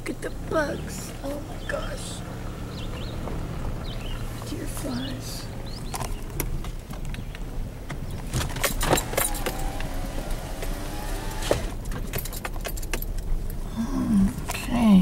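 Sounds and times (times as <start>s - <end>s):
clicking and rattling in car: 2.7s - 13.6s.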